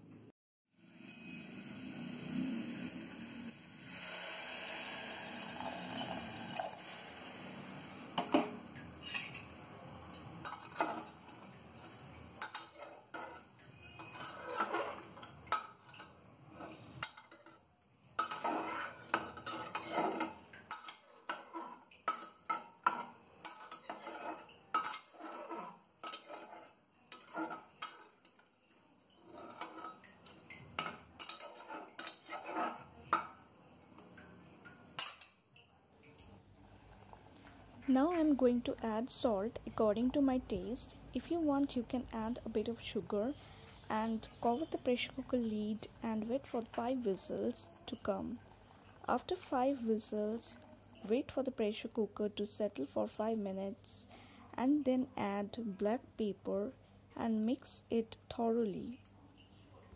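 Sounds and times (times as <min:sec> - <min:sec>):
water pouring into a pot: 0:00.8 - 0:16.2, 0:48.3 - 0:49.1
metal ladle scraping a pot: 0:08.1 - 0:09.5, 0:10.4 - 0:28.4, 0:29.1 - 0:33.3.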